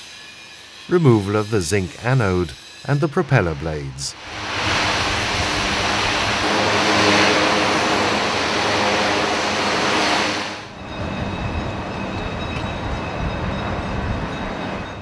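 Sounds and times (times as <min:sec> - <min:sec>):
faint high whines: 0:00.3 - 0:15.0
machinery hum: 0:00.9 - 0:14.6
loud rushing industrial noise: 0:01.4 - 0:12.2.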